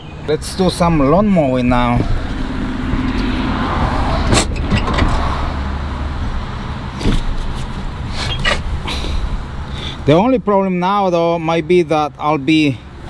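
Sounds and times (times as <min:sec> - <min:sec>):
sharp knocks and clunks: 0:04.2 - 0:05.3.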